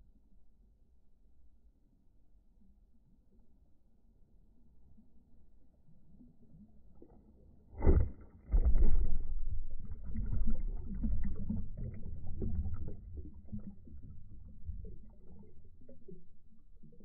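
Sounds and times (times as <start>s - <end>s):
muffled underwater churning: 5.0s - 17.0s.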